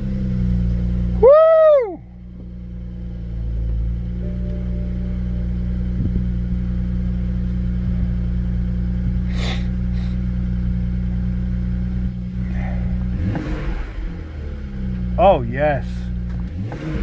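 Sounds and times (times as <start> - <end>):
car engine idling: 0.0 - 17.0
engine revving: 11.6 - 17.0.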